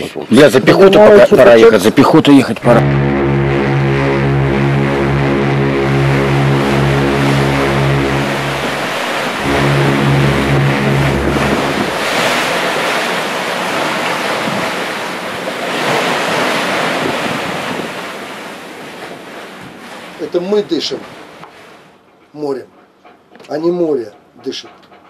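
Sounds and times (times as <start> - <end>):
boat engine droning: 2.6 - 15.3
wind on microphone: 2.7 - 14.8
sea waves washing: 2.7 - 21.8.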